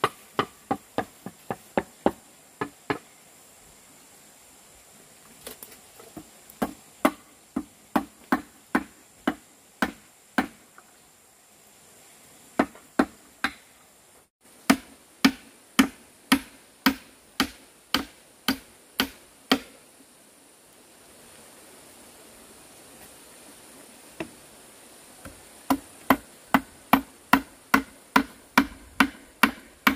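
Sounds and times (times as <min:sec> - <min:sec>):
tool striking wood: 0:00.0 - 0:03.0, 0:06.6 - 0:10.6, 0:12.6 - 0:13.6, 0:14.7 - 0:19.8, 0:25.2 - 0:29.9.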